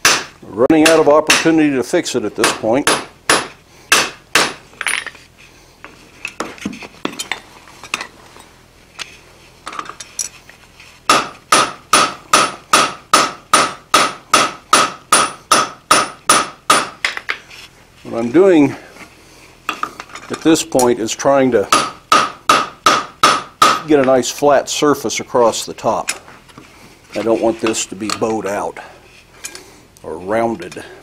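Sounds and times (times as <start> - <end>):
hammer striking steel on anvil: 0.0 - 1.6, 2.4 - 4.6, 11.1 - 17.2, 21.7 - 23.9.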